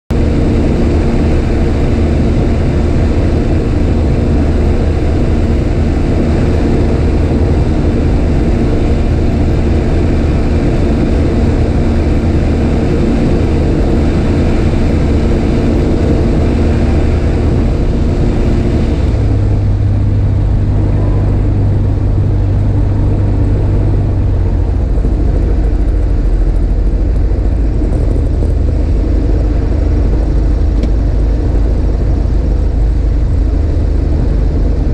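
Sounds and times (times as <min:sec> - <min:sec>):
light aircraft engine and propeller: 0:00.1 - 0:34.9
wind noise: 0:00.1 - 0:34.9.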